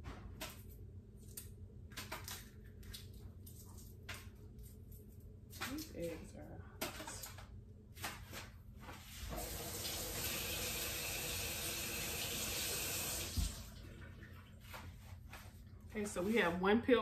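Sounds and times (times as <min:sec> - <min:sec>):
faucet running into sink: 0:09.3 - 0:14.3.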